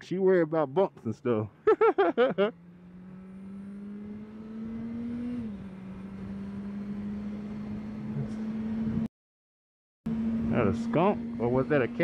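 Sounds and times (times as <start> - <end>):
road noise: 0.0 - 9.1, 10.1 - 12.0
motorcycle engine running: 10.1 - 12.0.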